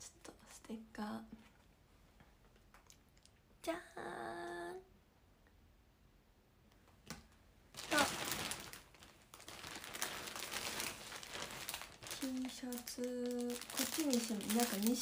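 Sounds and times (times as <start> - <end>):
shopping bag crinkling: 7.8 - 15.0.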